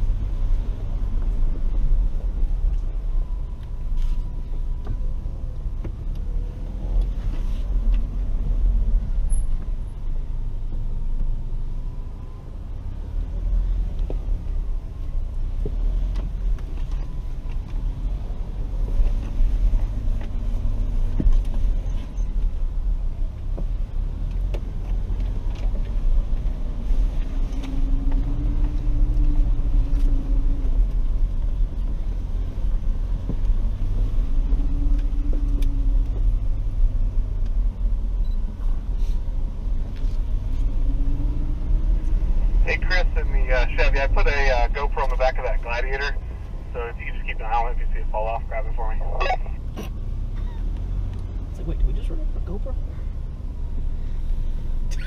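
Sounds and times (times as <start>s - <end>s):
engine and tyres rumbling: 0.0s - 55.0s.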